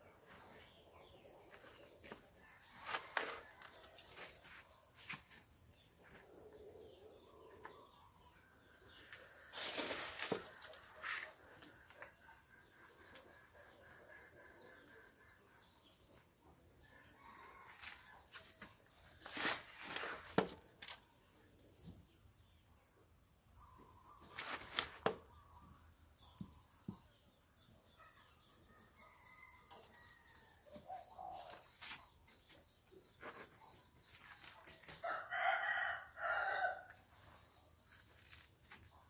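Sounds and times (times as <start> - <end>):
rustling and scraping of soil: 0.1 - 13.1, 17.0 - 22.2, 23.9 - 27.3, 28.3 - 35.3, 36.8 - 39.0
rooster crowing: 35.0 - 37.0.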